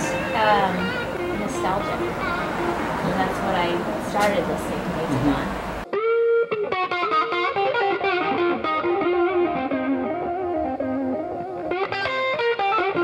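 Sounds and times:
guitar background music: 0.0 - 4.3, 5.8 - 13.0.

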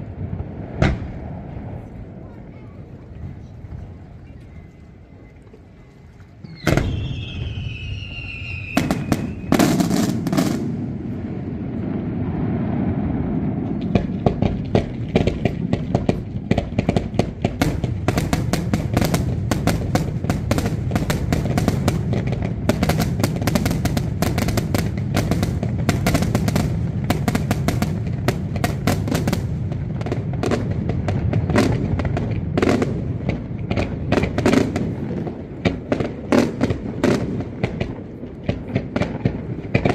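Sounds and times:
rapid firework reports and crackling: 0.0 - 4.5, 6.5 - 39.9
falling whistles: 4.4 - 9.8.

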